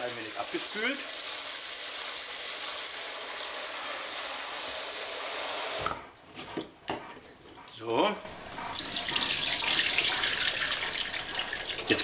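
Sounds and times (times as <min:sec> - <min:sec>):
tap water rushing into sink: 0:08.3 - 0:12.0.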